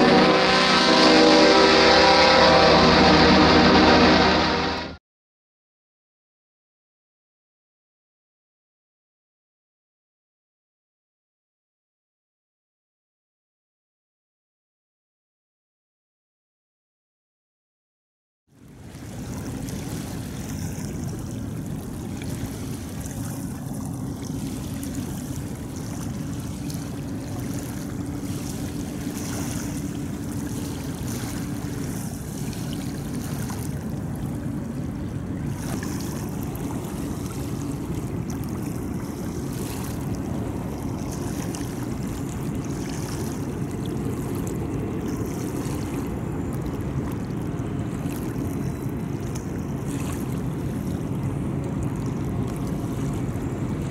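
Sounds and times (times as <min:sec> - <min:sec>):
distant locomotive engine rumble: 0:00.0 - 0:04.9, 0:18.6 - 0:53.9.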